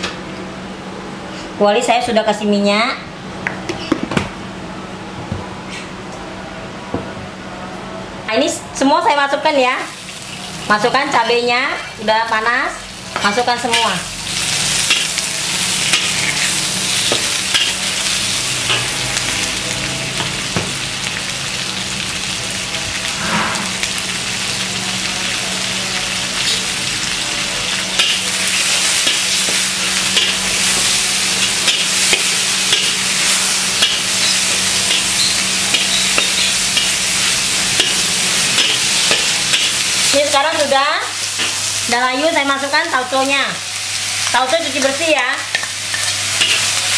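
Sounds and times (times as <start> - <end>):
vegetables sizzling in oil: 9.4 - 46.9
metal spatula scraping pan: 23.1 - 23.9.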